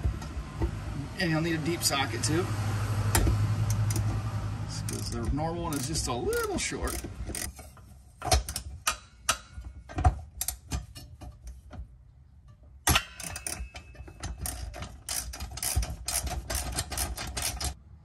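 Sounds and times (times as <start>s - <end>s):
hand ratchet clicking: 3.7s - 4.1s, 4.8s - 7.5s, 13.1s - 17.8s.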